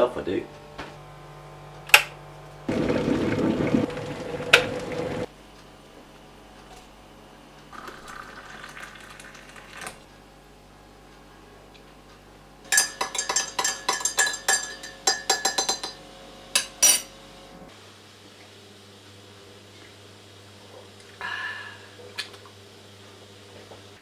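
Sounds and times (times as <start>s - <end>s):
liquid pouring into mug: 7.7s - 10.0s
teaspoon clinking in mug: 12.7s - 16.0s.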